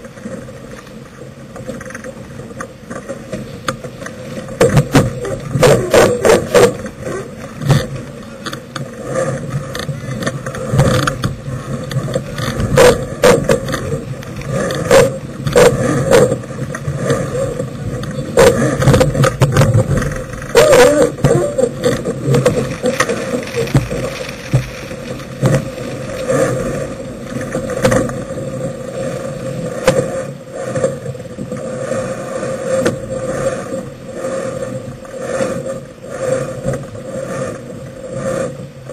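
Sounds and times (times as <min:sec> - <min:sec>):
water noise: 0:00.0 - 0:38.9
wind: 0:00.0 - 0:38.9.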